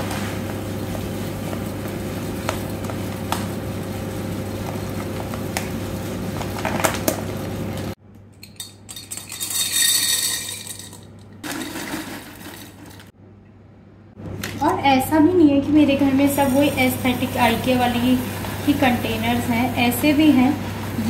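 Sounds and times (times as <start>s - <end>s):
dry pasta rattling into glass jar: 8.6s - 13.0s
steady hum: 12.2s - 21.0s.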